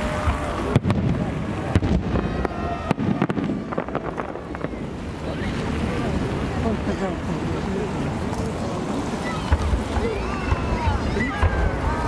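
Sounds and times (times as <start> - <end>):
distant fireworks bangs: 0.0 - 12.0.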